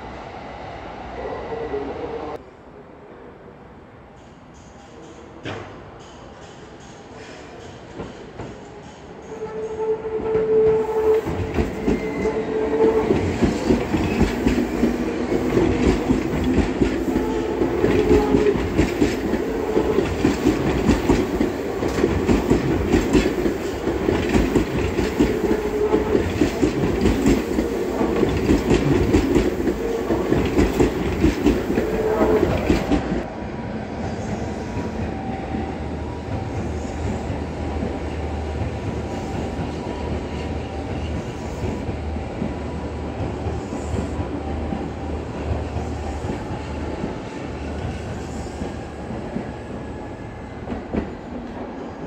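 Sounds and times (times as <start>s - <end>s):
train drone at platform: 0.0s - 52.0s
train wheels clicking over rail joints: 10.7s - 33.3s.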